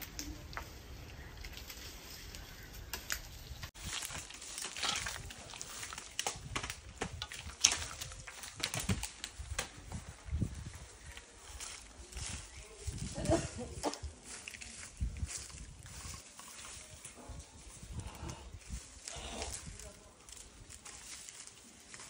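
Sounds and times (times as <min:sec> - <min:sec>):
dry pods and leaves rustling: 0:00.0 - 0:22.0.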